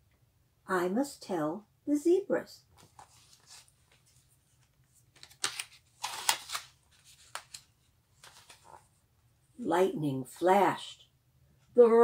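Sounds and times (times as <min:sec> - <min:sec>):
book pages turning: 0:02.7 - 0:09.0.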